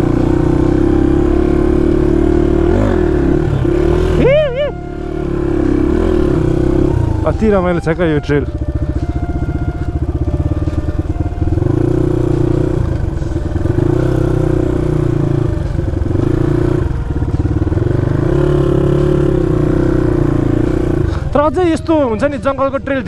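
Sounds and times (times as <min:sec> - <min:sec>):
dirt bike engine running: 0:00.0 - 0:23.0.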